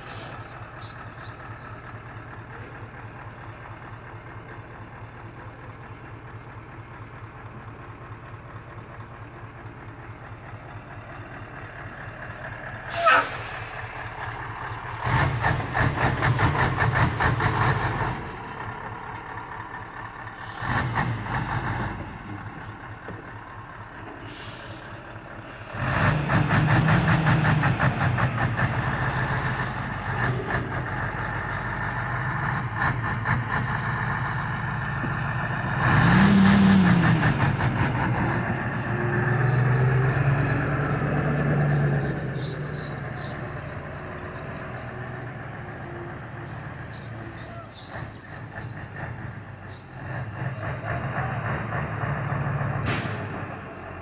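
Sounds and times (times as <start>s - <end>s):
diesel truck engine idling and revving: 0.0s - 54.0s.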